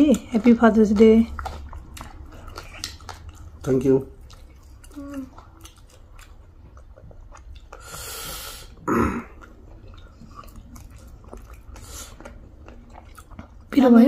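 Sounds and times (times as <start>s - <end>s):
chewing and mouth clicks: 0.0s - 14.0s
long hissing breath: 7.8s - 8.7s.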